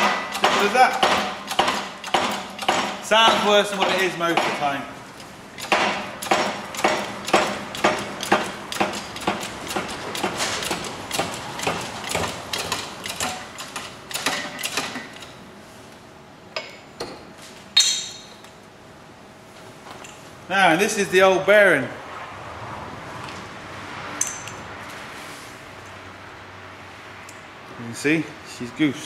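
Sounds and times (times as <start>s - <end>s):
hydraulic press metallic clicks: 0.0s - 3.0s
sharp metal knocks: 0.0s - 4.8s, 5.6s - 15.2s, 17.8s - 18.4s.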